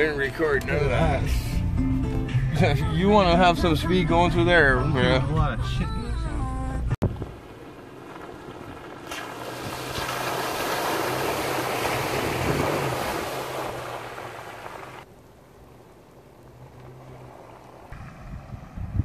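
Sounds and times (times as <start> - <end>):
engine running: 6.8 - 19.0
tyres churning through mud: 7.0 - 18.7.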